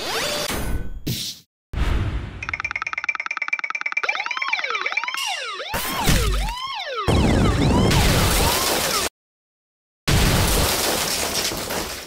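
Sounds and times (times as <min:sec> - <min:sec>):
cartoon siren wailing: 0:04.0 - 0:08.8.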